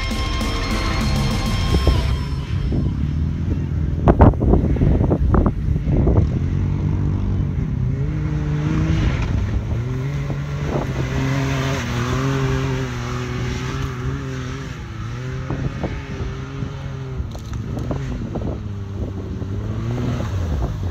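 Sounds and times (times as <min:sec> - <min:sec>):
vehicle engine at high revs: 0:00.0 - 0:20.9
wind gusting on microphone: 0:01.5 - 0:20.9
sand spraying from tyres: 0:08.2 - 0:20.9.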